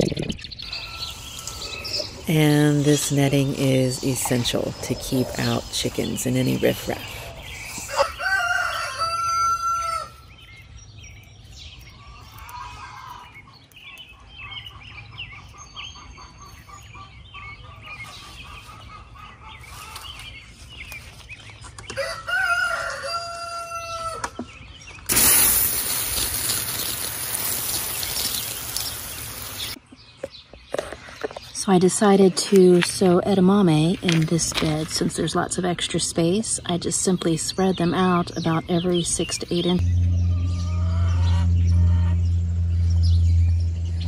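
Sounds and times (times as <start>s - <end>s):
small birds chirping: 0.0s - 44.0s
garden hose spraying water: 1.2s - 8.0s, 25.1s - 29.8s
rooster crowing: 7.9s - 10.2s, 22.0s - 24.3s.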